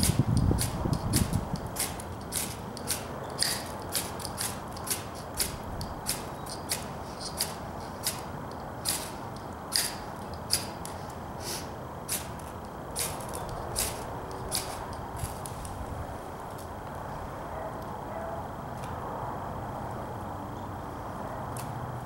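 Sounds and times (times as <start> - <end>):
knife scraping ferro rod: 0.0 - 10.8, 11.4 - 15.6.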